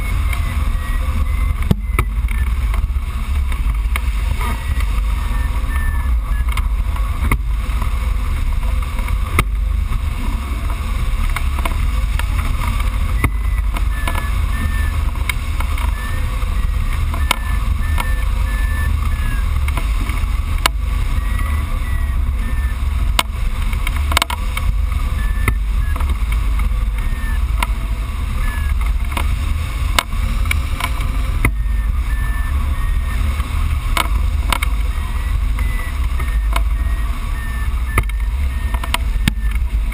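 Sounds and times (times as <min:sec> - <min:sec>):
faint short beeps: 0:00.0 - 0:03.4, 0:04.1 - 0:06.7, 0:13.0 - 0:19.6, 0:20.5 - 0:23.5, 0:25.0 - 0:26.2, 0:26.9 - 0:28.8, 0:31.4 - 0:39.9.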